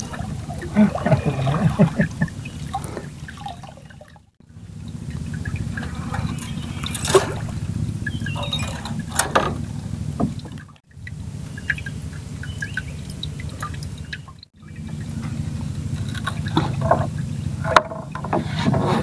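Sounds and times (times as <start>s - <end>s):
steady low rumble: 0.0s - 18.3s
water lapping against boat hull: 0.0s - 19.0s
sharp knocks in boat: 5.8s - 10.8s, 16.0s - 19.0s.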